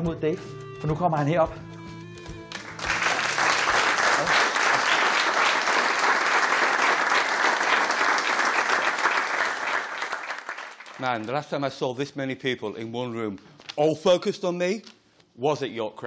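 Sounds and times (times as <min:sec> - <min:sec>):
audience applauding: 0:02.5 - 0:11.3.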